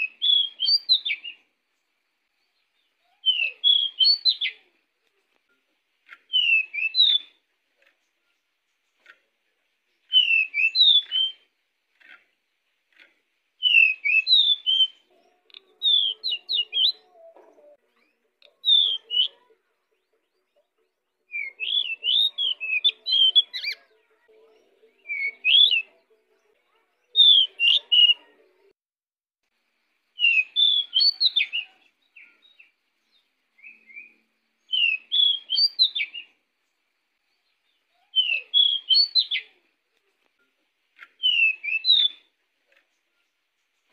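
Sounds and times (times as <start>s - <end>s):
bird chirping whistles: 0.0s - 1.4s, 3.2s - 4.5s, 6.3s - 7.4s, 10.1s - 11.4s, 13.6s - 15.0s, 15.8s - 17.0s, 21.3s - 23.6s, 27.2s - 28.2s, 30.2s - 31.7s, 33.6s - 36.3s, 38.2s - 39.6s, 41.2s - 42.3s.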